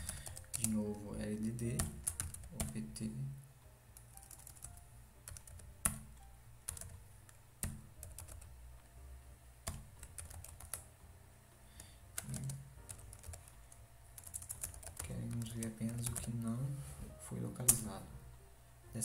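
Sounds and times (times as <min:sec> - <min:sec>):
keyboard typing: 0:00.0 - 0:02.9, 0:04.0 - 0:08.5, 0:09.6 - 0:10.9, 0:11.8 - 0:16.4.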